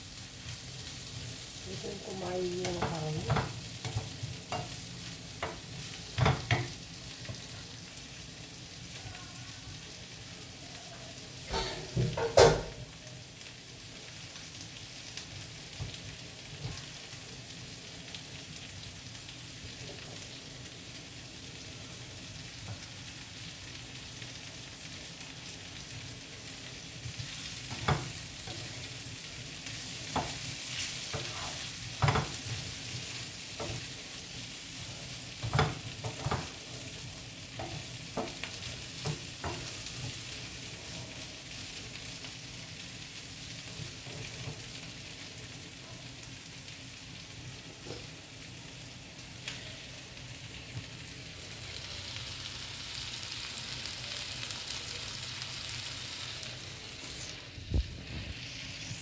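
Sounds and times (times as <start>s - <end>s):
food sizzling in a frying pan: 0.0s - 59.0s
wooden spatula knocking against pan: 2.6s - 4.7s, 5.4s - 6.8s, 32.0s - 32.4s.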